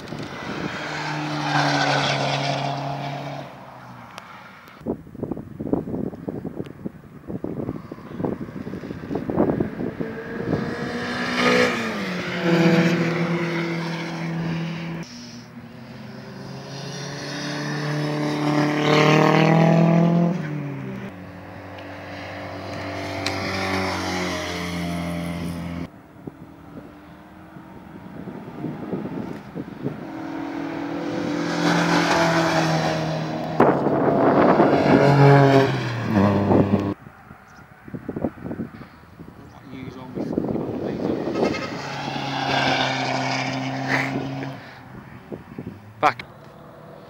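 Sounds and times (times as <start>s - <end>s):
wind buffeting microphone: 0.0s - 1.4s, 4.8s - 13.6s, 26.1s - 46.0s
passing car engine: 0.0s - 4.9s, 7.2s - 47.0s.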